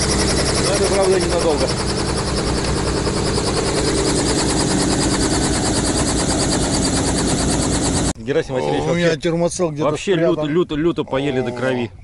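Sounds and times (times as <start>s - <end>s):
helicopter engine drone: 0.0s - 8.2s
helicopter rotor chop: 0.0s - 8.2s.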